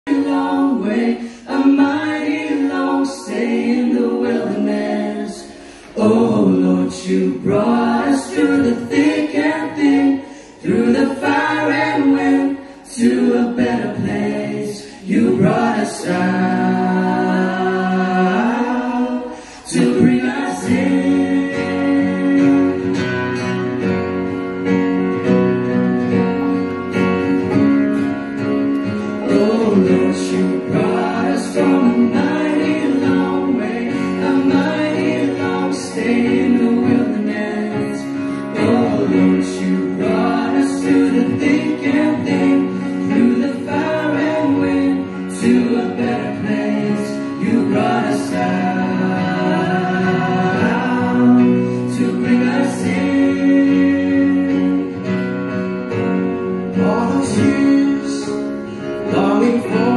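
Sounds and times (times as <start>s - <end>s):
acoustic guitar: 0.0s - 59.9s
group singing gospel in harmony: 0.0s - 59.9s.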